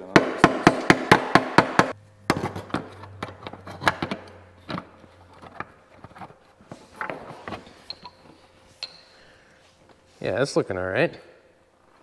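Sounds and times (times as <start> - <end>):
low hum: 1.9 - 10.1.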